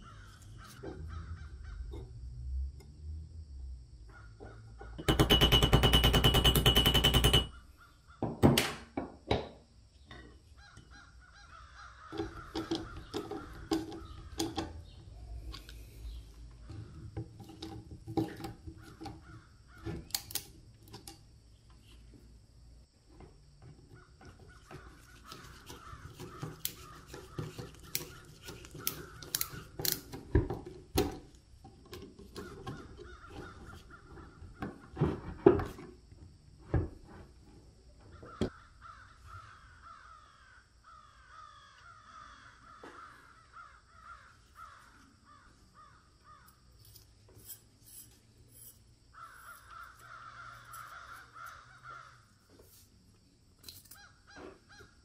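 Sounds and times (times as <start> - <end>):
sharp metallic clicks and knocks: 4.8 - 7.6.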